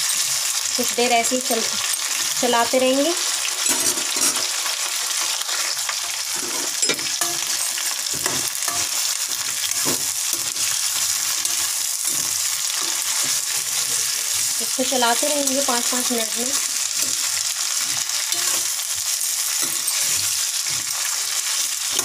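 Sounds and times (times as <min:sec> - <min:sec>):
cauliflower sizzling in hot oil: 0:00.0 - 0:22.0
metal spatula scraping and knocking: 0:03.6 - 0:04.6, 0:05.6 - 0:14.2, 0:16.6 - 0:22.0.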